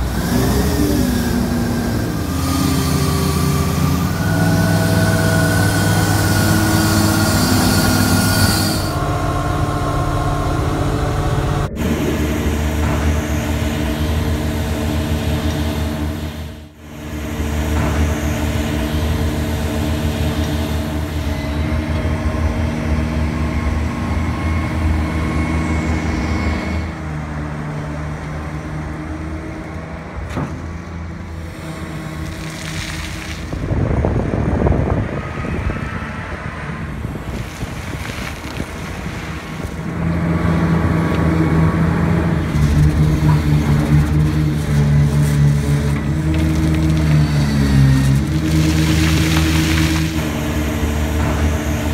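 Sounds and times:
diesel machinery engines under load: 0.0s - 51.9s
loud rushing: 1.0s - 16.2s.

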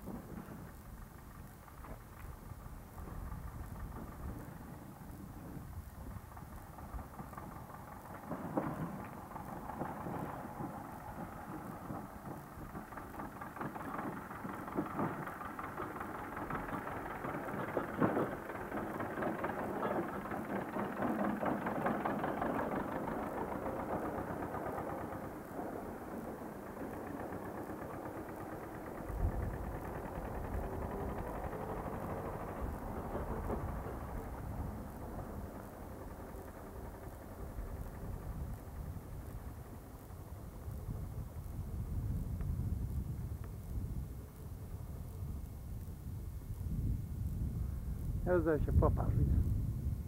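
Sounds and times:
tractor engine running: 0.0s - 50.0s.

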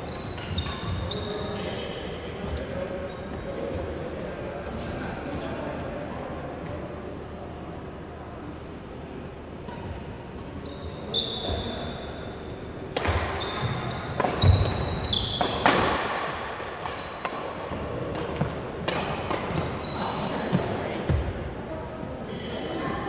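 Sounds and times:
rackets hitting shuttlecock: 12.9s - 19.8s
shoes squeaking on wooden floor: 13.4s - 16.2s, 16.8s - 18.0s.

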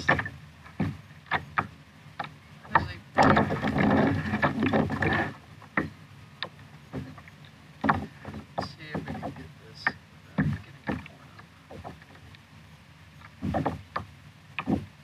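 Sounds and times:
knocks and taps on plastic hull: 0.0s - 12.2s, 13.2s - 15.0s
fish rustling and rattling on deck: 0.0s - 12.3s.

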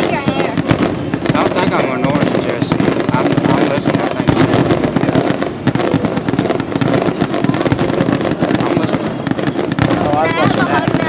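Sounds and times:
firework bangs: 0.0s - 11.0s
fireworks crackling: 0.0s - 11.0s.

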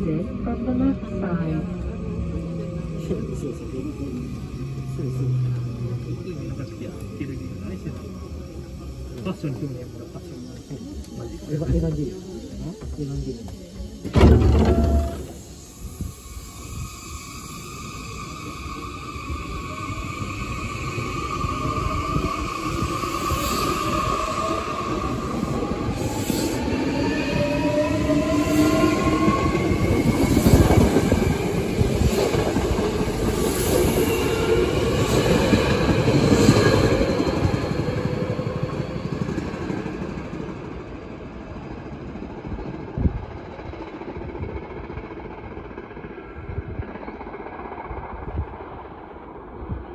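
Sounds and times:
wheel clatter at rail joints: 11.8s - 15.4s
electric train motor whine: 11.8s - 15.6s.

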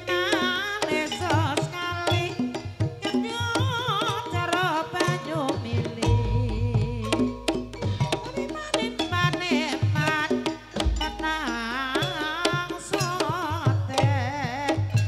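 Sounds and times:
hand drums beating: 0.0s - 15.0s
metallophones playing: 6.0s - 12.4s.

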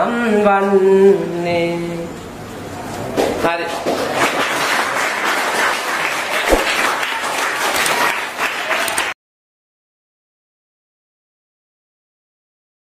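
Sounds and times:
children applauding: 4.0s - 9.2s.

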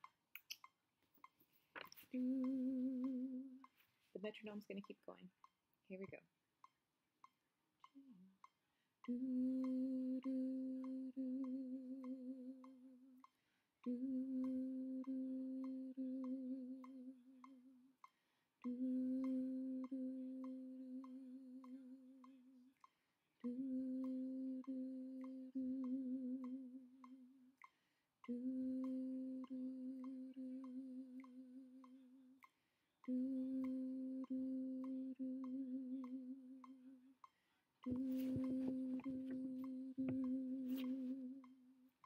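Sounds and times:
woman singing long notes: 2.1s - 5.0s, 9.0s - 17.8s, 18.6s - 22.8s, 23.4s - 32.4s, 33.0s - 37.1s, 37.8s - 41.7s.

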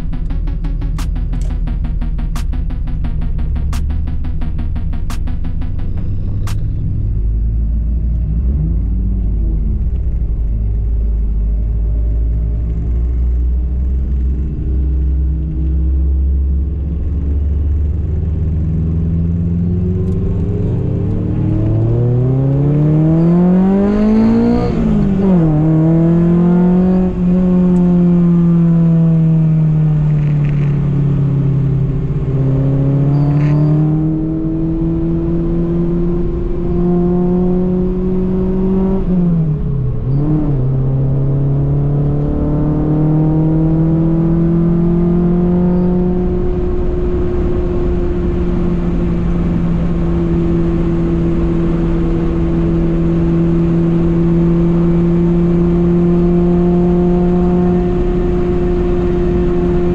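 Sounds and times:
car engine accelerating: 0.0s - 59.9s.

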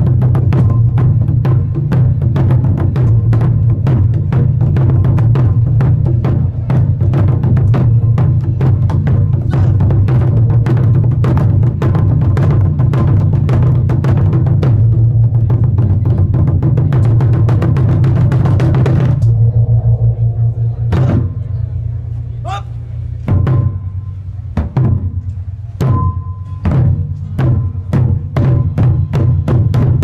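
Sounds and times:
barrel drums beaten with sticks: 0.0s - 21.7s, 22.5s - 30.0s
deep continuous drum boom: 0.0s - 30.0s.

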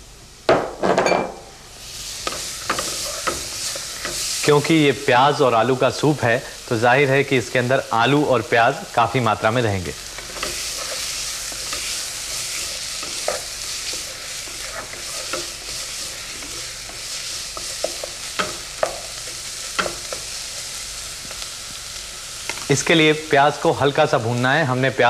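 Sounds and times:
onions sizzling in butter: 1.7s - 25.0s
spatula scraping and tapping pot: 10.2s - 20.3s.

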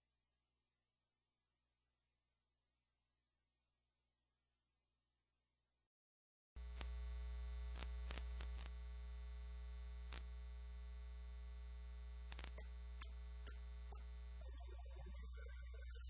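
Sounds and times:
scattered clicks: 6.6s - 14.5s
faint electrical hum: 6.6s - 16.0s.

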